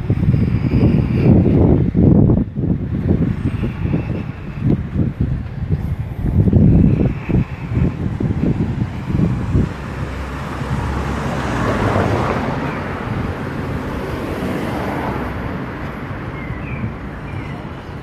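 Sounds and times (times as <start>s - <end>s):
traffic noise: 0.0s - 18.0s
car driving past: 6.5s - 17.6s.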